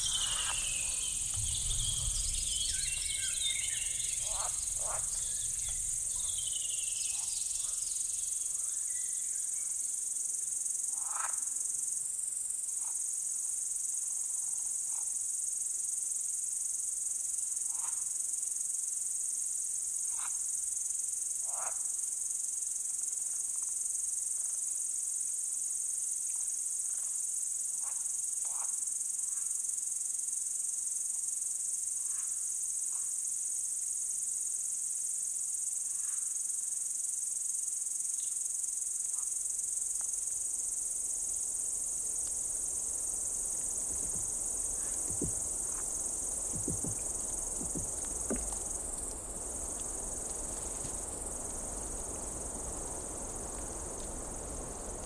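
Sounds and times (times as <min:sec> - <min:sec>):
crickets chirping: 0:00.0 - 0:55.0
low knocks: 0:43.7 - 0:49.2.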